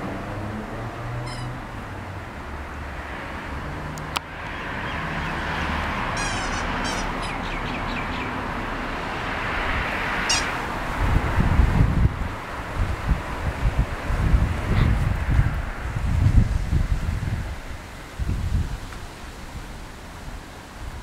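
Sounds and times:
high-pitched chirping calls: 0:01.2 - 0:01.6, 0:06.1 - 0:08.4, 0:10.2 - 0:10.6.

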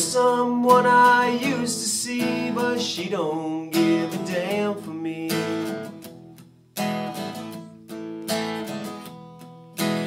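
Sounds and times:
acoustic guitar strumming chords: 0:00.0 - 0:10.0.

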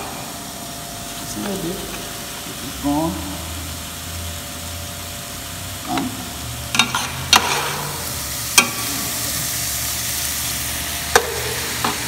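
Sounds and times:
sausage sizzling in a pot: 0:00.0 - 0:12.0
metal spoon clanking on pot: 0:06.7 - 0:07.8.

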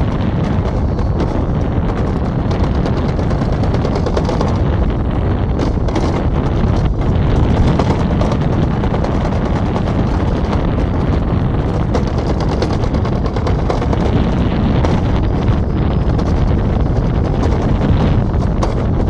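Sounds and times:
fine rattle: 0:00.0 - 0:19.0
sled rumbling down steel trough: 0:00.0 - 0:19.0
wind buffeting microphone: 0:00.0 - 0:19.0.

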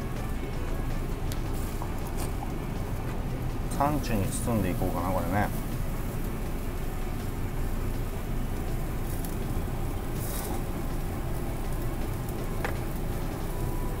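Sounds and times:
meat sizzling on a grill: 0:00.1 - 0:14.0.

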